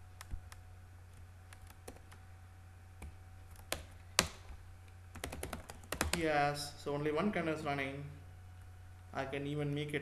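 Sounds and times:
computer keyboard keystrokes: 1.5s - 2.2s, 3.0s - 4.4s, 5.1s - 6.3s.

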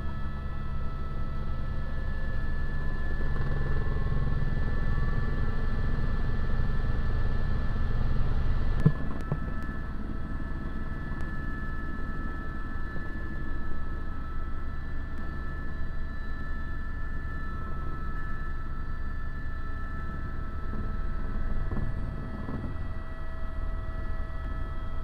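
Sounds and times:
helicopter engine and rotor: 0.0s - 25.0s.

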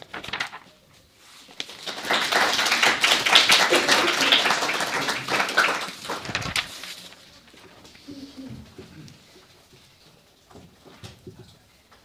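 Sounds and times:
audience applauding: 1.6s - 6.8s.

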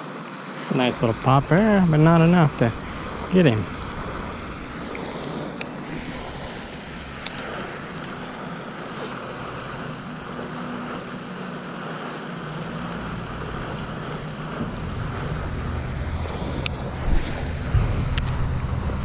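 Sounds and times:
wind on microphone: 1.0s - 19.0s.

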